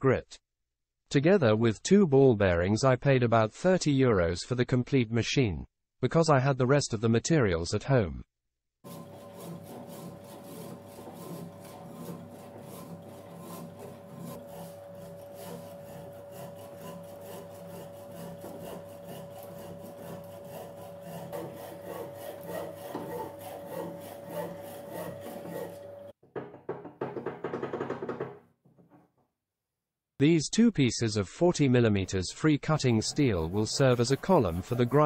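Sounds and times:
hacksaw cutting steel bar: 8.9s - 26.1s, 32.8s - 35.0s.

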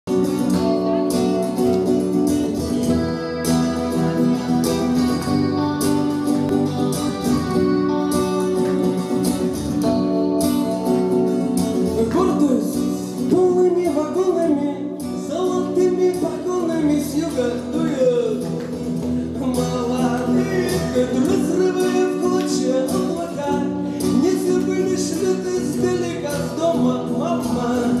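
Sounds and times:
sliding guitar melody: 0.1s - 28.0s
strummed guitar chords: 0.1s - 28.0s.

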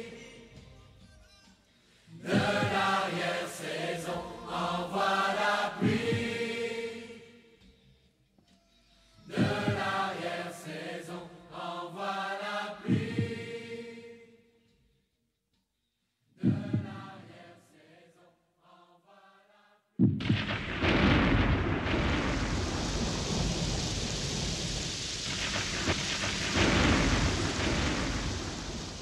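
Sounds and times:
thunder crack and rumble: 20.0s - 29.0s
heavy rain: 20.2s - 29.0s.

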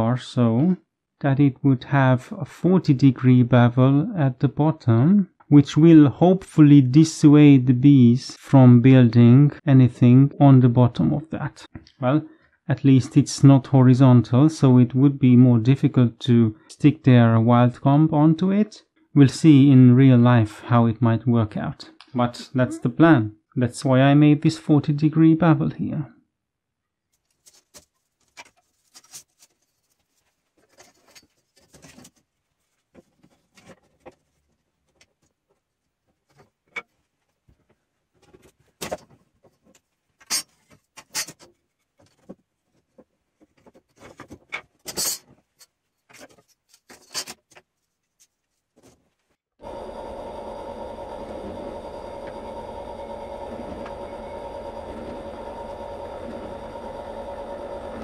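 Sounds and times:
drill press motor humming: 49.6s - 58.0s.

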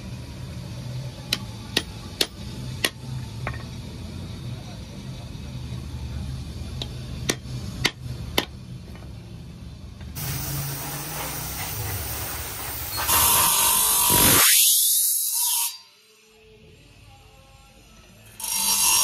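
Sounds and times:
bench grinder hiss: 10.2s - 15.7s.

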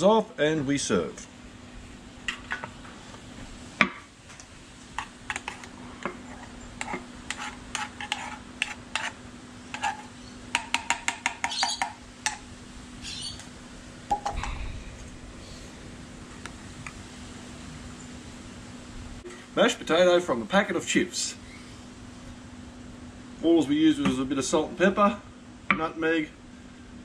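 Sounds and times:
metal spoon scraping saucepan: 6.3s - 10.1s.

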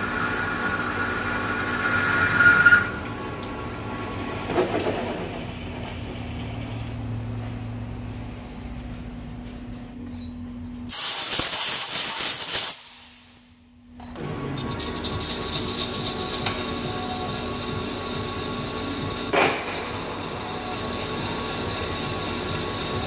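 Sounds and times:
lathe motor hum: 0.0s - 8.3s, 14.2s - 23.0s
compressed air hiss: 10.9s - 13.4s.

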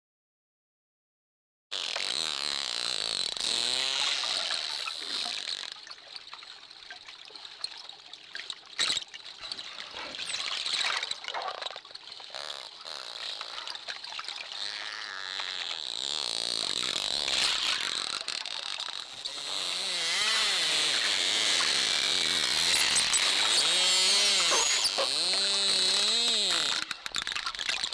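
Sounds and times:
dolphin clicks: 15.3s - 27.9s
dolphin whistles: 22.5s - 26.8s.

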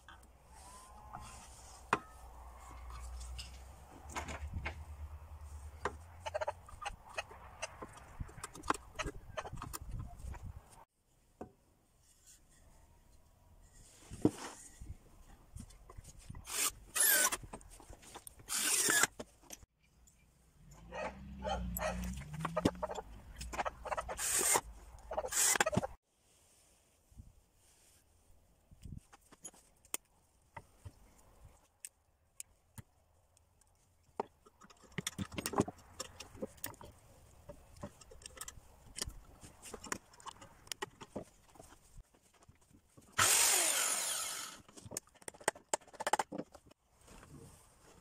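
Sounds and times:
parts being handled and fitted: 1.2s - 5.1s, 28.8s - 43.2s, 44.6s - 47.4s.

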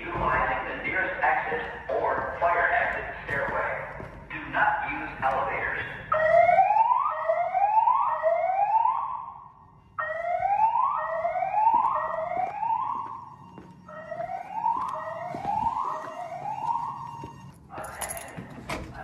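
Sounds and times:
fire alarm whoop tone: 6.1s - 17.6s.

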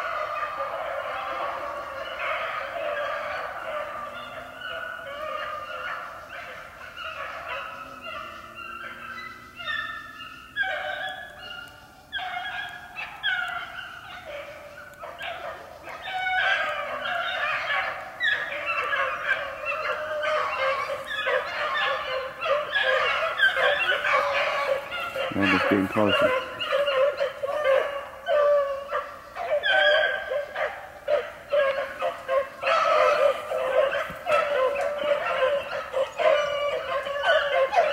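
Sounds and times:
hounds baying in chorus: 0.0s - 37.9s.

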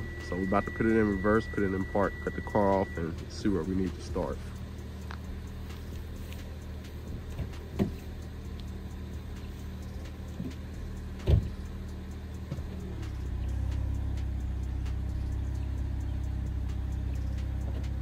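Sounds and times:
car engine idling: 0.0s - 18.0s
sharp thump: 7.4s - 8.0s, 11.2s - 11.6s.

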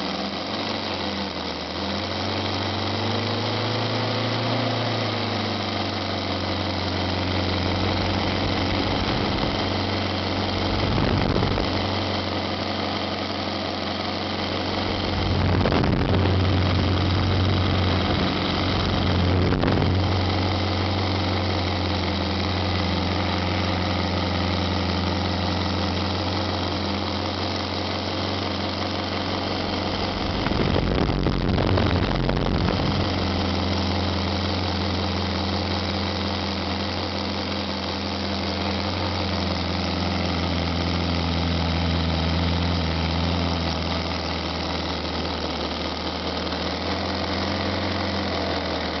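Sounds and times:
radial engine idling: 0.0s - 49.0s.

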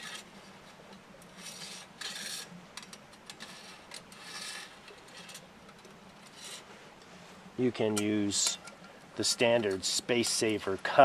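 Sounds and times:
metal rods scraping: 0.0s - 0.3s, 1.2s - 6.7s, 7.9s - 10.5s.

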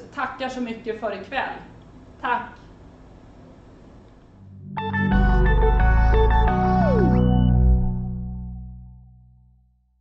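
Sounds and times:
music: 4.4s - 10.0s.

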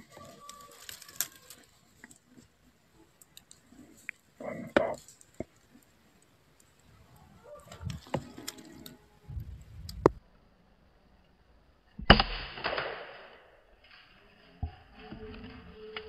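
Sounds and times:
faint clicks: 3.1s - 6.9s
air rifle shot: 12.0s - 13.6s.

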